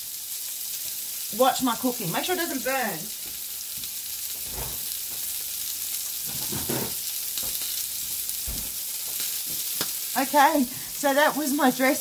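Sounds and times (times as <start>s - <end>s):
chicken sizzling in frying pan: 0.0s - 12.0s.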